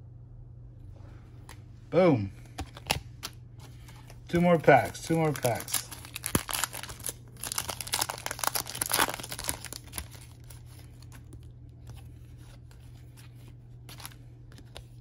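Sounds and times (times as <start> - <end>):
cards rustling and clicking: 2.4 - 15.0
foil wrapper tearing and crinkling: 4.3 - 11.3.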